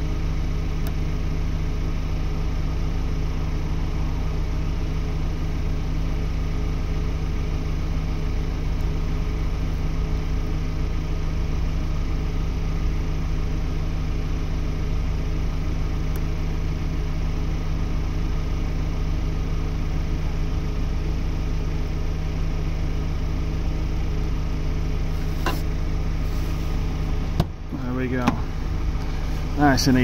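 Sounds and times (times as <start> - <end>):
vehicle engine idling: 0.0 - 30.0.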